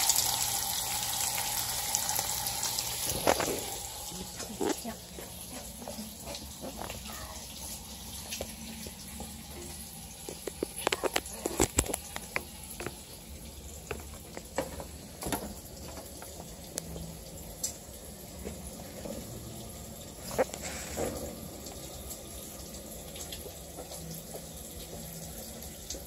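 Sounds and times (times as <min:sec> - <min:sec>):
kitchen clicks and clatter: 0:10.3 - 0:13.0.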